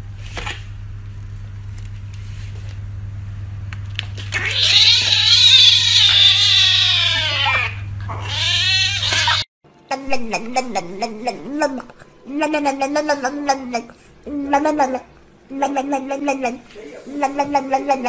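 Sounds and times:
steady low hum: 0.0s - 18.0s
kitten meowing: 4.4s - 9.5s.

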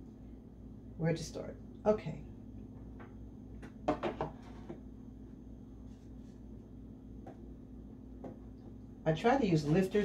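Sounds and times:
ceramic bowl knocking on tray: 3.8s - 4.4s.

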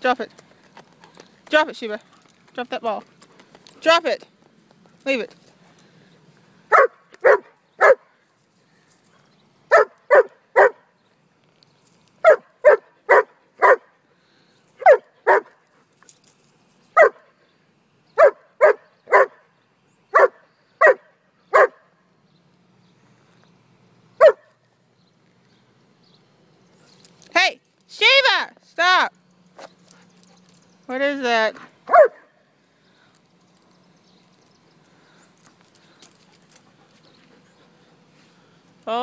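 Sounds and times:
dog barking: 6.7s - 8.1s, 9.7s - 10.8s, 12.2s - 13.9s, 14.8s - 15.6s, 17.0s - 17.3s, 18.2s - 19.5s, 20.2s - 21.8s, 24.2s - 24.5s, 31.9s - 32.4s.

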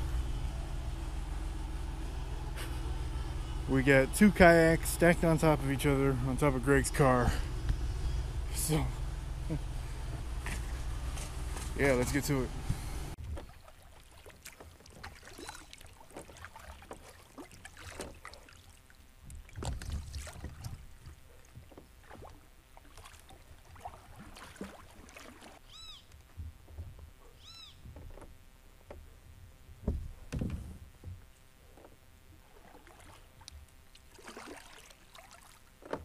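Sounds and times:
paddle splashing in water: 12.7s - 25.7s, 29.8s - 36.0s
paddle knocking against hull: 19.2s - 22.4s, 23.8s - 25.6s, 27.8s - 29.1s, 29.8s - 32.0s, 35.8s - 36.0s.

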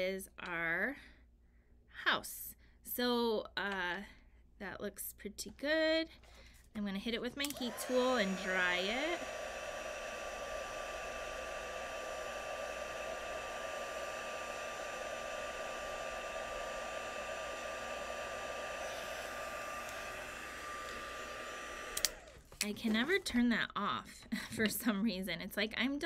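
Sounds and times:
heat gun blowing with whine: 7.4s - 23.1s.

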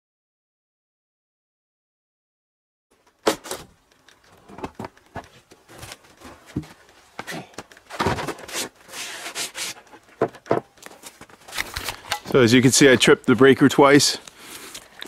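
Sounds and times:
wood scraping on wood: 4.3s - 13.1s
wood knocks: 10.2s - 10.8s.

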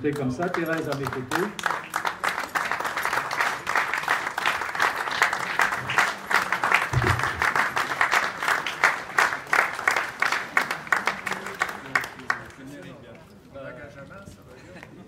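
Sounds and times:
crowd applauding: 0.1s - 12.6s
low thump: 7.0s - 7.5s.

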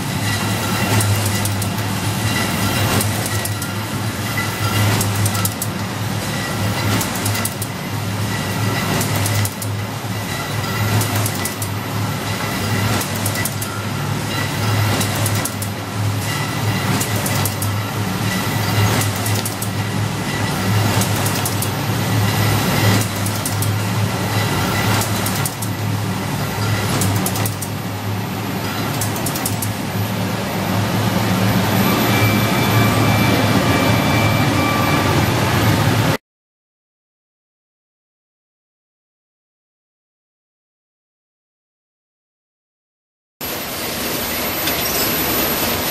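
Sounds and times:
mechanism clacks and knocks: 0.9s - 1.8s, 2.9s - 3.8s, 4.9s - 5.8s, 6.9s - 7.8s, 9.0s - 9.8s, 11.0s - 11.8s, 15.0s - 15.8s, 19.0s - 19.8s, 20.9s - 21.8s, 22.9s - 23.8s, 24.8s - 25.8s, 26.9s - 27.8s, 28.9s - 29.8s.

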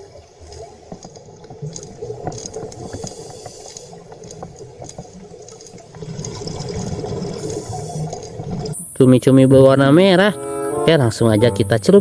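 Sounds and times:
small underwater clicks and crackles: 0.0s - 9.5s
underwater water noise: 0.0s - 12.0s.

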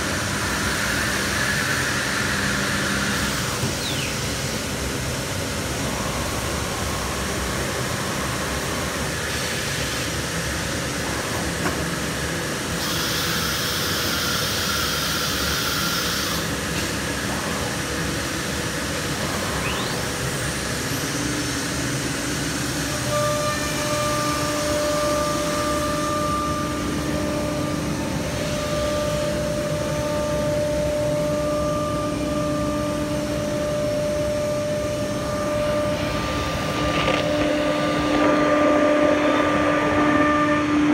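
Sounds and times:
cnc machine running: 0.0s - 40.9s
steady whine: 0.0s - 40.9s
hiss: 12.8s - 17.2s.

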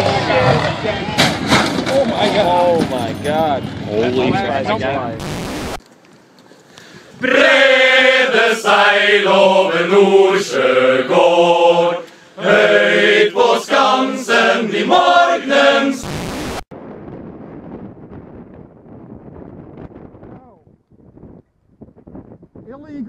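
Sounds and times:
static hiss burst: 5.2s - 5.8s, 16.0s - 16.7s
men singing in chorus: 7.2s - 16.0s.

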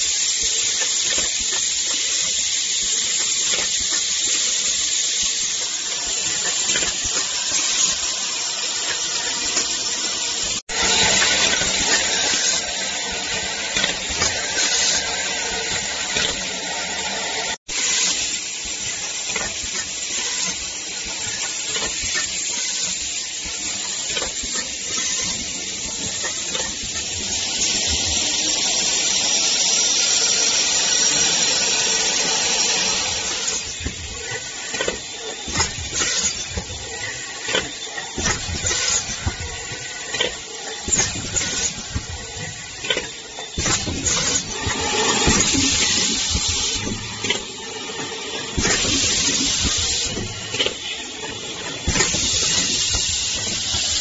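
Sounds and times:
compressed air hissing: 0.0s - 54.0s.

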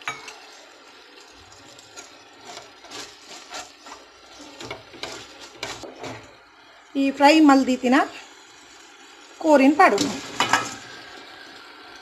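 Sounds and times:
wooden spatula scraping metal pan: 1.5s - 6.4s.

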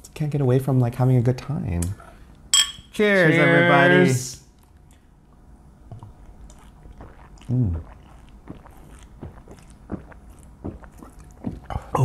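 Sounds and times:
swallowing gulps: 5.8s - 12.0s.

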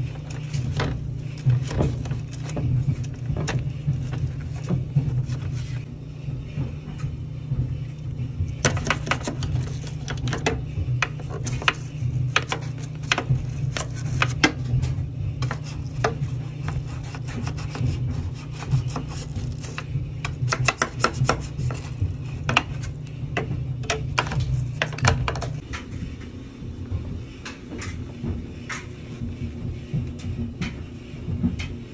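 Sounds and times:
brush scrubbing plastic: 0.0s - 5.9s, 7.9s - 25.6s
low hum: 0.0s - 31.9s.

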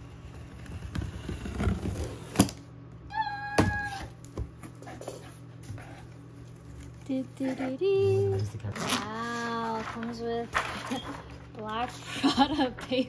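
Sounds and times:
cardboard flaps rustling and scraping: 0.2s - 2.5s.

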